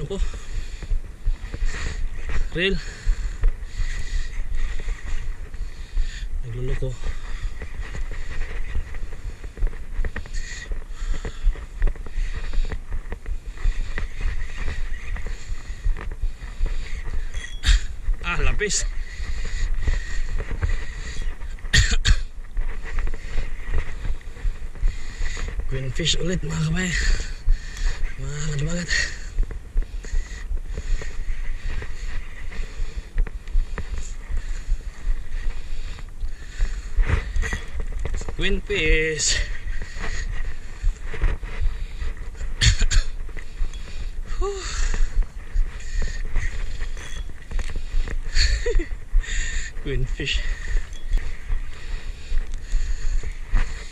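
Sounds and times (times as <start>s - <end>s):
man talking: 0.0s - 0.4s, 2.5s - 2.9s, 6.4s - 7.1s, 18.2s - 18.9s, 25.7s - 27.2s, 28.2s - 29.2s, 38.4s - 39.6s, 49.8s - 50.6s
wind buffeting microphone: 0.0s - 53.9s.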